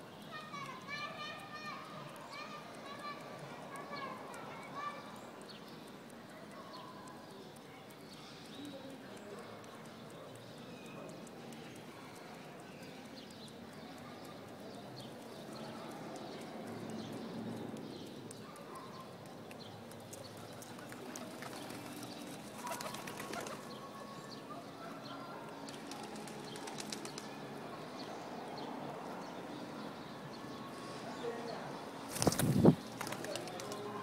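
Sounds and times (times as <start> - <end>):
birds pecking on wood: 0.1 - 27.3, 32.1 - 34.0
wing flutters: 20.3 - 23.7, 32.1 - 33.8.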